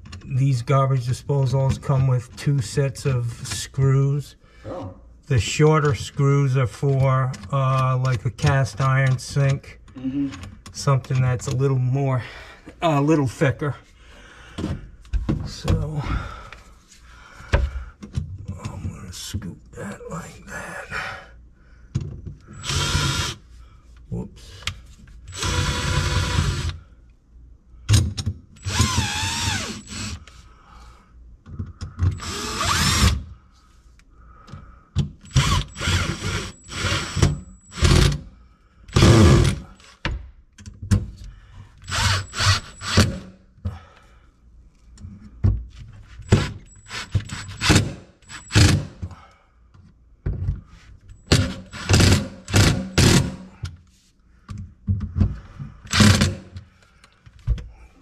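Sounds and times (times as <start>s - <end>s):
power drill driving screws: 22.5s - 23.4s, 25.3s - 26.8s, 28.6s - 30.2s, 32.1s - 33.2s, 35.3s - 38.2s, 38.9s - 39.6s, 41.8s - 43.3s, 46.3s - 48.9s, 51.3s - 53.4s, 55.9s - 56.5s.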